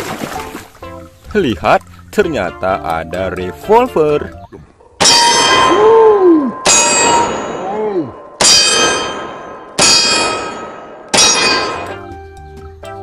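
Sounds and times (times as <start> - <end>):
steel plate target clanging: 5.0 - 5.9, 6.5 - 12.2.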